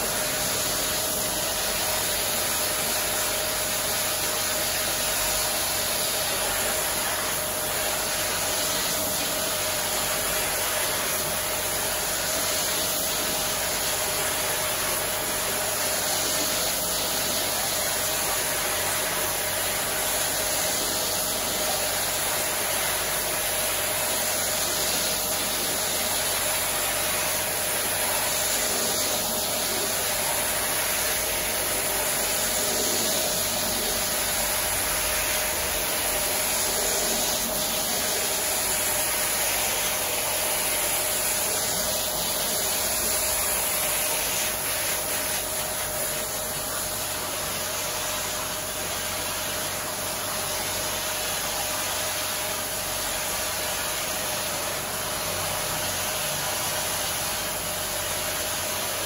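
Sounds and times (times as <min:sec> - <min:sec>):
pressure washer spraying: 0:00.0 - 0:59.0.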